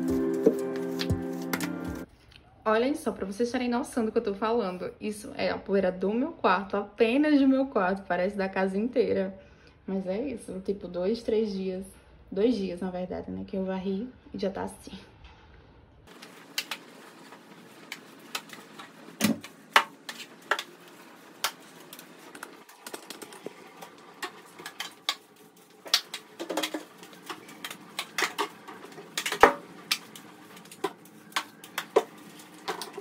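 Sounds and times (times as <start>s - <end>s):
broom sweeping a floor: 0.0s - 2.1s.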